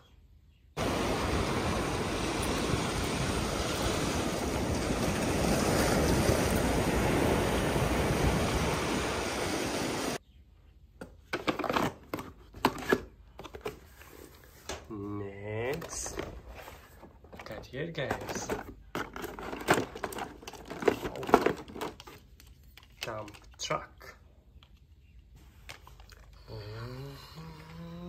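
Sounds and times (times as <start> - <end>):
sea waves breaking on rocks: 0.8 - 10.2
wind on microphone: 0.8 - 10.2.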